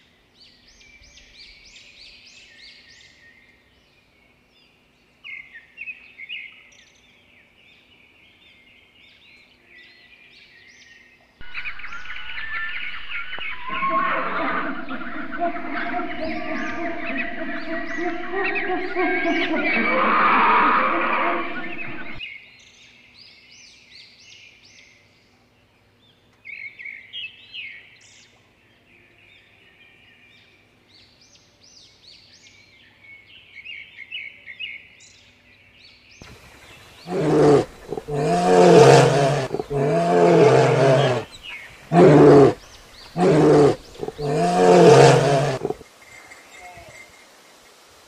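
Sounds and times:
faint bird chirps: 11.4s - 22.2s
large animal roaring: 11.4s - 22.2s, 37.1s - 41.3s, 41.9s - 42.6s, 43.2s - 45.8s.

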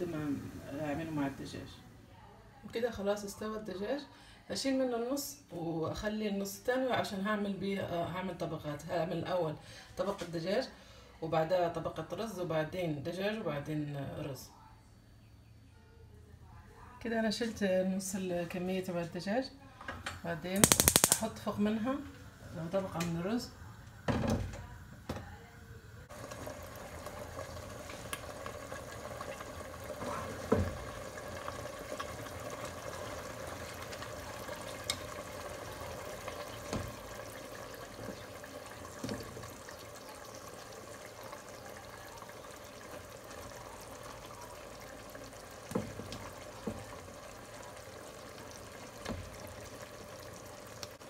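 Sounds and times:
watery hiss from pot: 20.6s - 21.3s.

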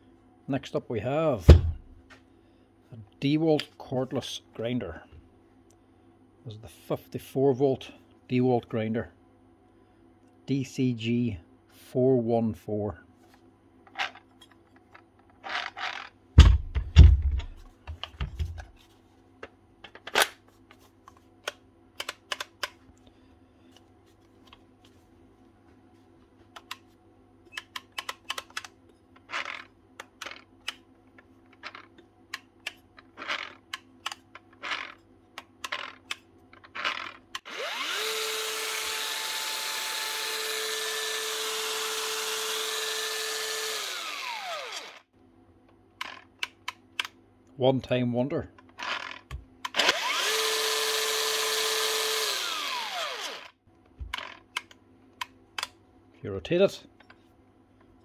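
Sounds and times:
tool handling clicks and knocks: 13.9s - 22.9s, 27.5s - 37.5s, 53.9s - 55.8s
angle grinder whine: 36.8s - 45.1s, 49.8s - 53.6s.

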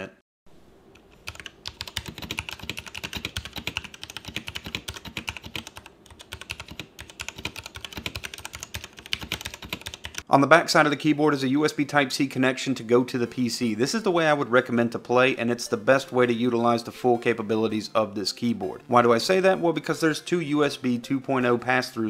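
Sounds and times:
mechanical keyboard typing: 1.0s - 10.3s.

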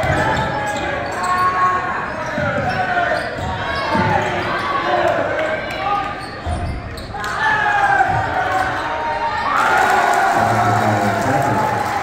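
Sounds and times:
crowd cheering and yelling: 7.4s - 12.0s.

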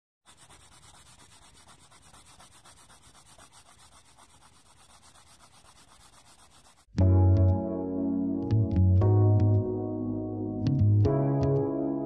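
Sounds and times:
colored pencil scratching on paper: 0.2s - 6.9s.

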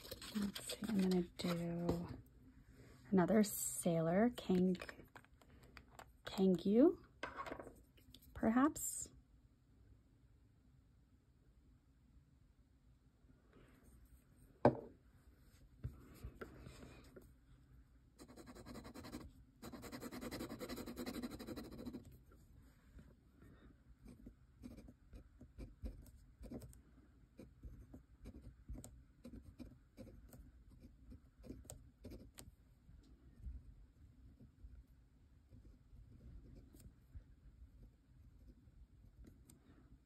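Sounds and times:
pen nib scratching on paper: 0.0s - 2.1s, 18.2s - 22.2s, 24.0s - 26.8s, 27.4s - 32.5s.

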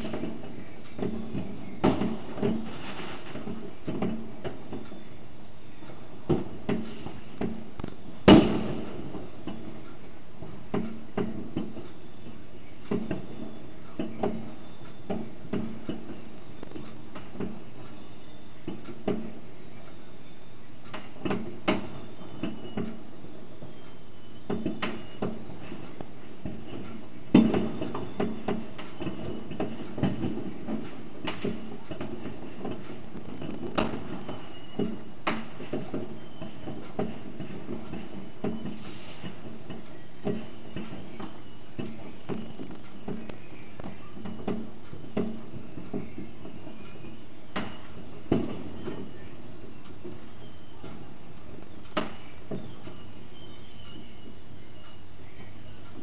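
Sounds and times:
fireworks bangs and pops: 0.0s - 4.8s, 6.2s - 9.8s, 24.5s - 46.4s, 47.6s - 49.2s.

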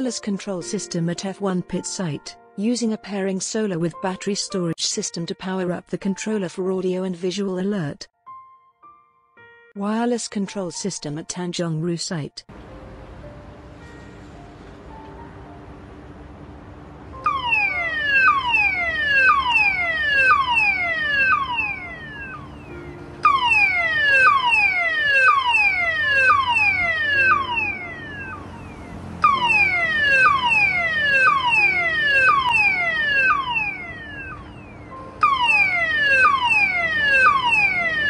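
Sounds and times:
electronic warning siren: 17.2s - 38.0s.

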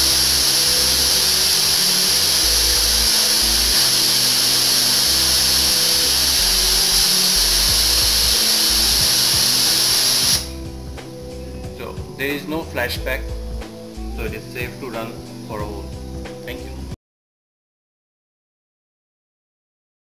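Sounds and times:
welding torch flame hissing: 0.0s - 11.4s.

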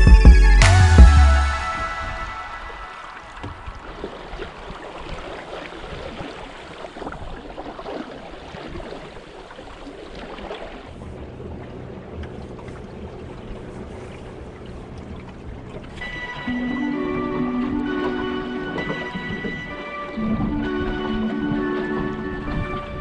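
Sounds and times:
water splashing along a hull: 1.4s - 23.0s
wind on microphone: 15.6s - 23.0s.

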